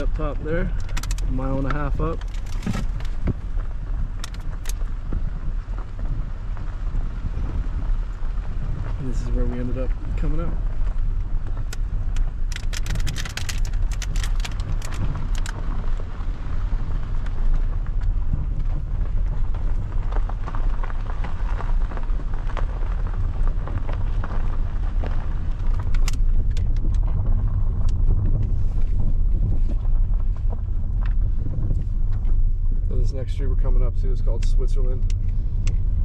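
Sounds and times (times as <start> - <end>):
sharp clicks and rattles: 0.0 - 5.2, 8.9 - 16.0, 17.2 - 36.0
car engine and tyres rumbling: 0.0 - 36.0.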